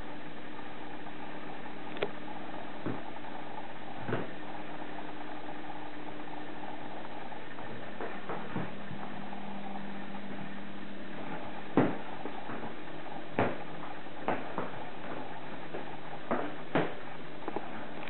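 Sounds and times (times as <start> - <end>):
steady low hum: 0.0 - 18.0
knocks from handling cardboard packing: 11.7 - 12.8.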